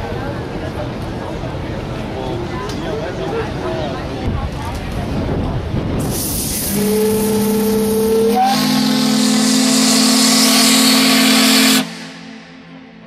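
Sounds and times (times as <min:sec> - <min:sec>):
steam hissing: 0:06.0 - 0:12.7
steam whistle blowing: 0:06.1 - 0:13.0.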